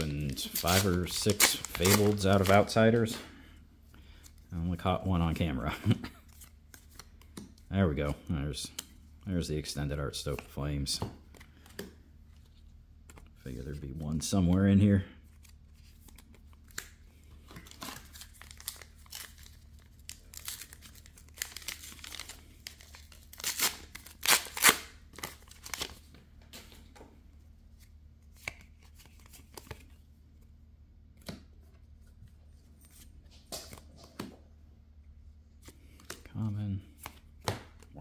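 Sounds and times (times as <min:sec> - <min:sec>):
wrapper tearing and crinkling: 0:00.0 - 0:02.7, 0:17.7 - 0:26.0
cards clicking and rustling: 0:00.0 - 0:03.2, 0:15.4 - 0:27.0, 0:28.3 - 0:30.0.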